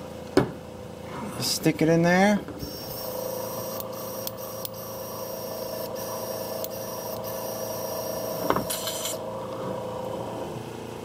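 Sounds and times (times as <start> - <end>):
air compressor humming: 2.5 - 11.0
airbrush blowing cleaner: 7.9 - 9.2.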